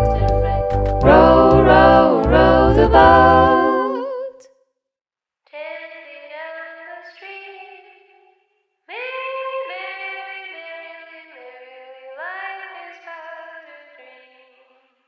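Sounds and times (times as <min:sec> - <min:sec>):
bass line: 0:00.0 - 0:04.0
sung vocal harmonies: 0:00.0 - 0:04.4
thin melody of held notes: 0:01.0 - 0:04.1.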